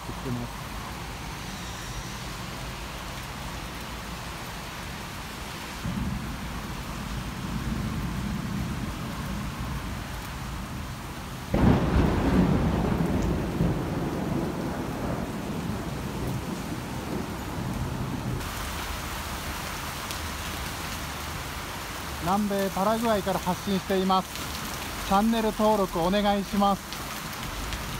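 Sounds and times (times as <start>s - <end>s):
heavy rain falling: 0.0s - 27.9s
rolling thunder: 5.8s - 18.4s
loud thunderclap: 11.5s - 18.4s.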